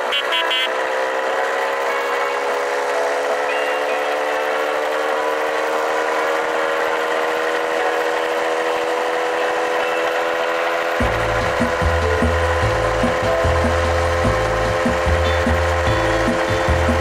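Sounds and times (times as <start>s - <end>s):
moped engine running: 0.0s - 17.0s
low rumble with knocks: 11.0s - 17.0s.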